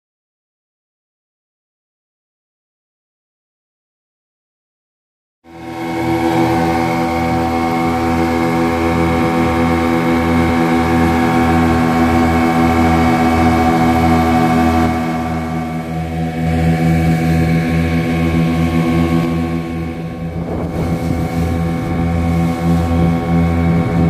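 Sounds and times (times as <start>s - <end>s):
boat engine throbbing: 5.5s - 24.0s.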